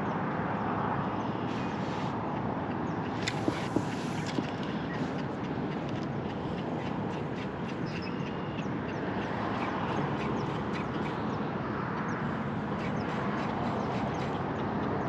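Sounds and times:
steady rushing noise: 0:00.0 - 0:15.0
high bird calls: 0:03.4 - 0:11.4, 0:12.1 - 0:14.5.

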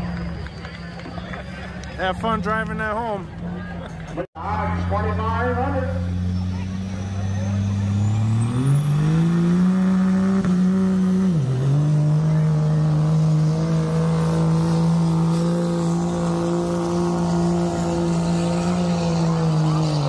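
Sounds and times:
engine at high revs: 0:04.5 - 0:20.0.

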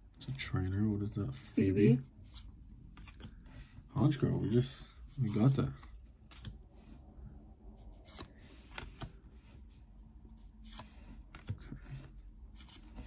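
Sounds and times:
cards snapping and rustling: 0:02.3 - 0:03.5, 0:05.2 - 0:06.7, 0:07.8 - 0:09.3, 0:10.5 - 0:13.0.

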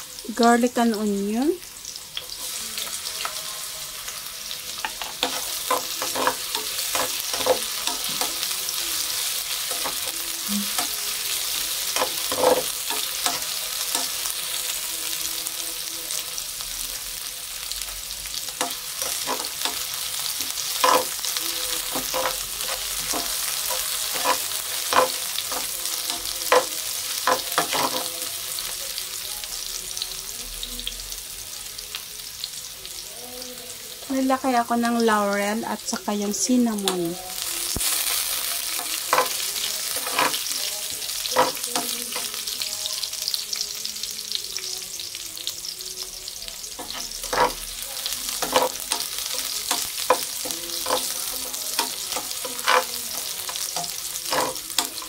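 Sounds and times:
onion sizzling in hot oil: 0:00.0 - 0:55.0
metal spatula scraping pan: 0:04.9 - 0:08.6, 0:10.7 - 0:14.2, 0:20.5 - 0:25.8, 0:38.9 - 0:40.5, 0:46.8 - 0:47.7, 0:48.3 - 0:55.0.

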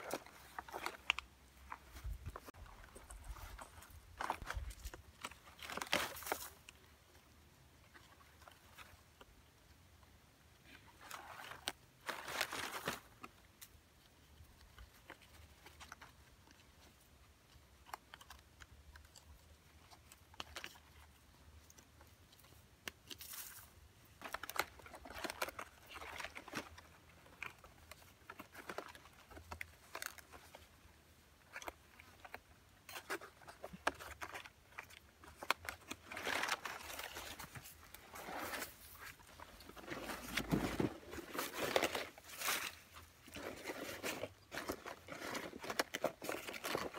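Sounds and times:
large leaves rustling and crackling: 0:00.0 - 0:06.9, 0:10.6 - 0:13.7, 0:22.3 - 0:30.8, 0:33.0 - 0:46.9.

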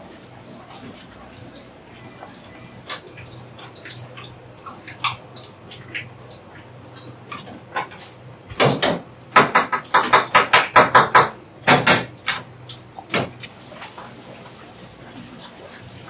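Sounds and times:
sharp kitchen knocks: 0:08.5 - 0:12.5.

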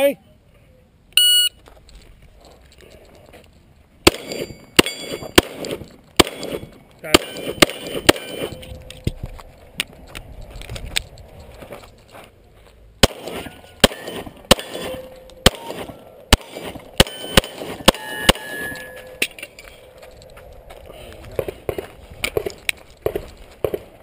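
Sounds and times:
pistol shots: 0:04.0 - 0:08.6, 0:13.0 - 0:18.8
metallic ring of struck plate: 0:17.0 - 0:19.4.

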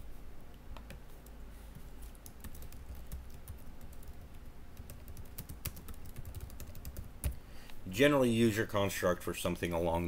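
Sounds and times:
low steady hum: 0:00.0 - 0:10.0
typing on computer keyboard: 0:02.2 - 0:07.4.

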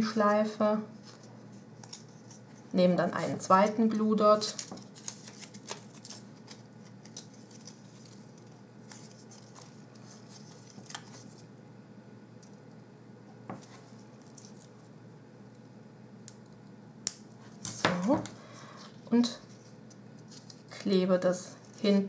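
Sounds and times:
paper backing strip rustling: 0:01.0 - 0:11.5, 0:13.5 - 0:14.9, 0:17.4 - 0:22.0.

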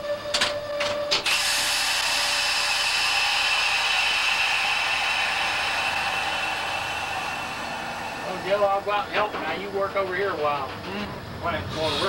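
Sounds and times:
steady tone: 0:00.0 - 0:10.4
loud hiss of air: 0:01.2 - 0:09.8.

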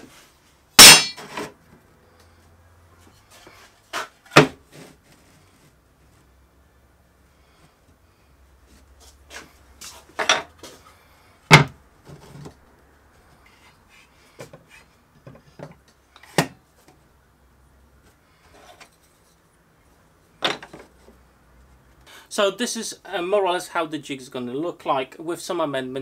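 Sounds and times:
tools set down on workbench: 0:10.2 - 0:10.6, 0:20.4 - 0:20.9.

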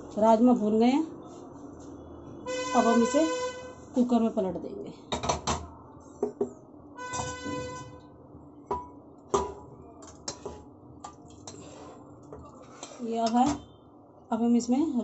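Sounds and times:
pan knocking against cooker: 0:08.7 - 0:09.6
wooden spatula scraping pan: 0:10.3 - 0:10.6.

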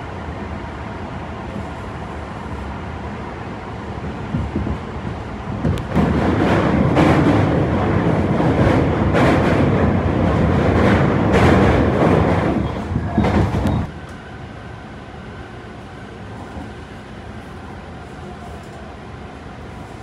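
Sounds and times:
electric train rumbling: 0:00.0 - 0:20.0
train wheel clacks: 0:05.5 - 0:13.9.

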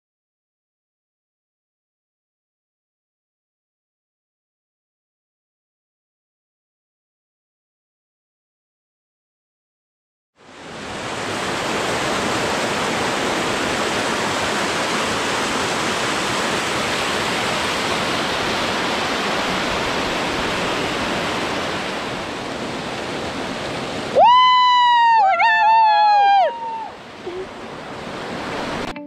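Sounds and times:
waterfall cascading over rocks: 0:10.5 - 0:24.6.

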